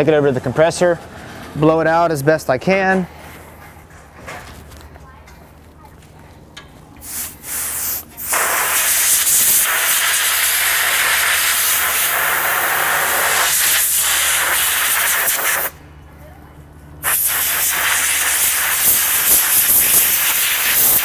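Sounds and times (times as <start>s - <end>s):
compressed air blow gun hissing: 7.0s - 15.8s, 17.0s - 21.0s.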